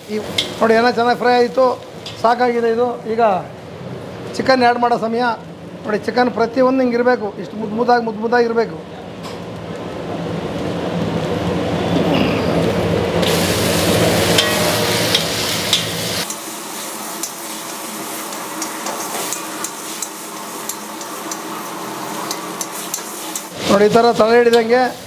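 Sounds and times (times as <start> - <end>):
chicken sizzling in oil: 13.0 - 25.0
metal spatula scraping wok: 13.3 - 23.9.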